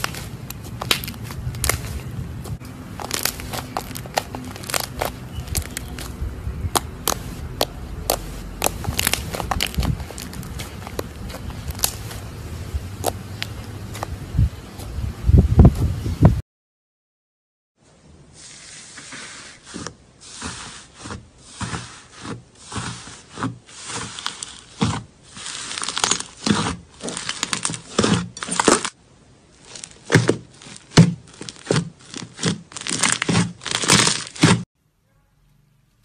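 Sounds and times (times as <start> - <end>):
slime crackling and tearing: 0.0 - 12.3, 22.7 - 34.6.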